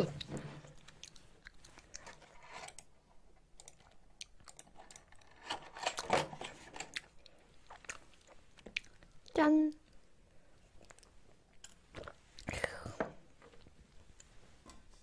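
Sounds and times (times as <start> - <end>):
close-miked chewing: 0.0 - 2.9, 3.6 - 5.3, 6.8 - 12.8.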